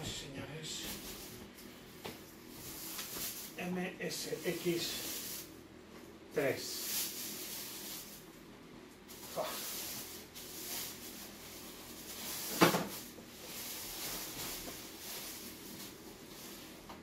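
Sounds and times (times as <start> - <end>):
plastic wrapping rustling: 0.8 - 5.6, 6.4 - 8.4, 9.0 - 17.0.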